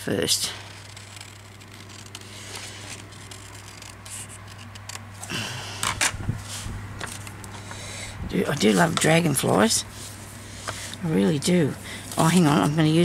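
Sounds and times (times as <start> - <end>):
steady low hum: 0.0 - 13.0
paper rustling: 0.5 - 7.9.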